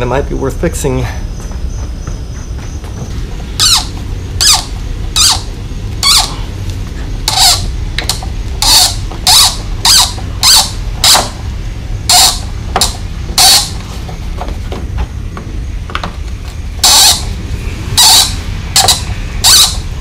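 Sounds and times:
engine cranking: 0:07.2 - 0:11.4, 0:16.7 - 0:20.0.

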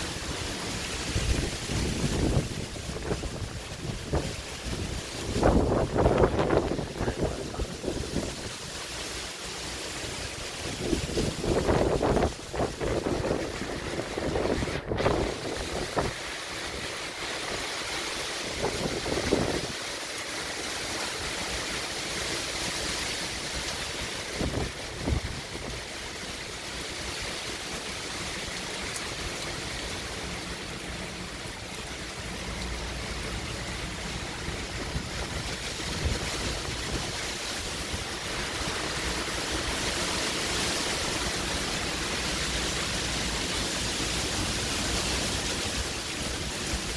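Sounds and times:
strong wind gusts: 0:00.0 - 0:08.8, 0:10.1 - 0:17.7, 0:18.4 - 0:19.9, 0:24.2 - 0:26.0, 0:34.4 - 0:46.9
rain: 0:00.0 - 0:46.9.

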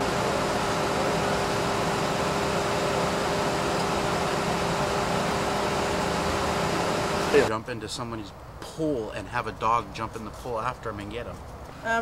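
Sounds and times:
vehicle idling: 0:00.0 - 0:07.5.

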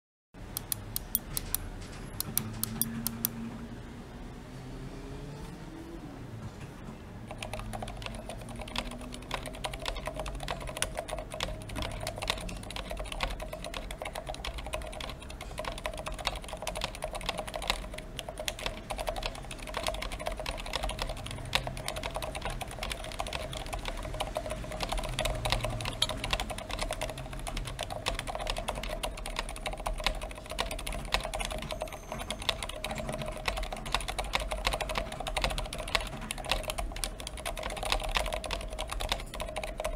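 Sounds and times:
fast mechanical keyboard typing: 0:00.6 - 0:03.3, 0:07.3 - 0:39.9.

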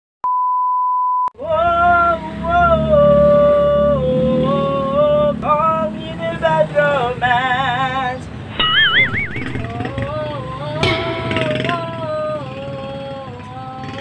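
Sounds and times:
man singing high notes: 0:10.8 - 0:13.0.

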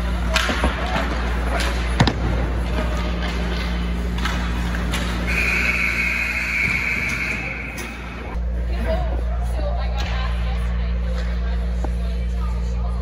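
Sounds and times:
ice rink hum: 0:00.0 - 0:13.0.

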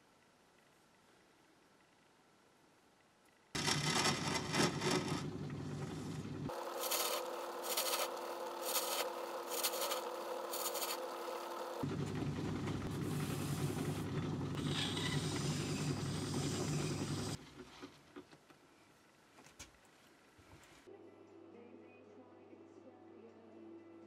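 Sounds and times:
abrasive pad rubbing spinning metal: 0:03.6 - 0:11.8
lathe running: 0:03.6 - 0:17.4.

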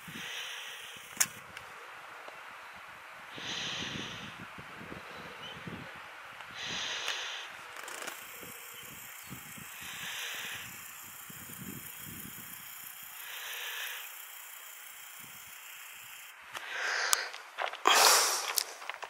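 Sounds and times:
person breathing: 0:00.0 - 0:01.1, 0:02.6 - 0:04.4, 0:06.5 - 0:07.6, 0:09.7 - 0:10.8, 0:13.2 - 0:14.3, 0:16.6 - 0:18.8
faint hiss: 0:00.0 - 0:18.8
wind buffeting on microphone: 0:03.4 - 0:07.0, 0:08.4 - 0:12.6.

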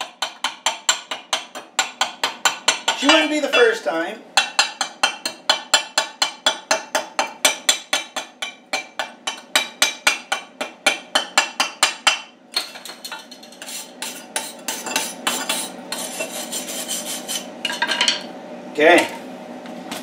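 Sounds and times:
wire brush scrubbing metal: 0:13.4 - 0:17.5.

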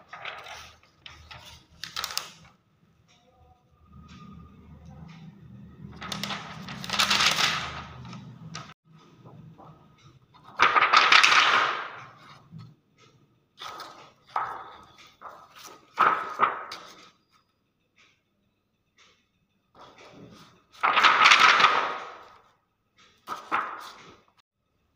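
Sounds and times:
plastic film sheets crinkling: 0:00.0 - 0:02.5, 0:06.0 - 0:08.7, 0:10.4 - 0:12.0.

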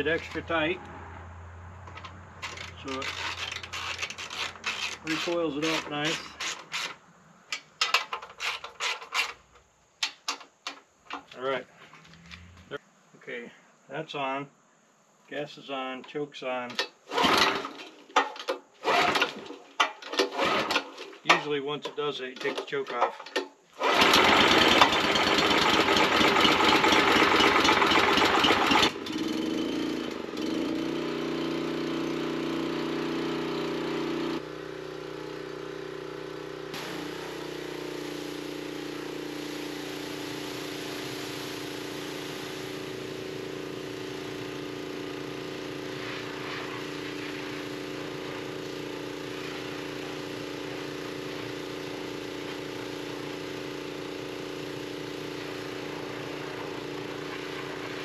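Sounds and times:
small gasoline engine running: 0:01.9 - 0:06.6, 0:17.1 - 0:17.9, 0:18.8 - 0:21.2, 0:23.3 - 0:58.0.

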